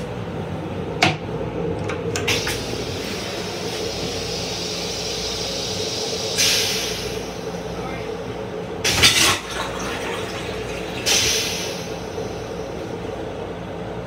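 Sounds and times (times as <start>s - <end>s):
railcar rumble and hum: 0.0s - 14.0s
toilet flushing hiss: 2.2s - 7.7s, 8.8s - 13.0s.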